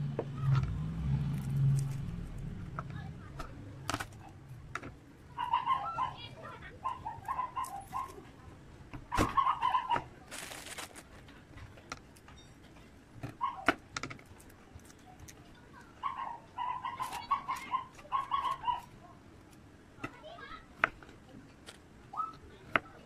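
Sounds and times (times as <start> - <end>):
garlic peeling clicks and rustles: 1.3 - 5.0, 10.3 - 12.4, 14.0 - 15.6.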